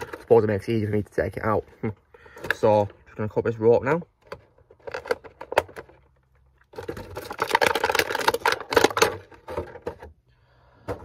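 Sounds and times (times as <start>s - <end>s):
plastic tray crackling: 4.2s - 10.1s.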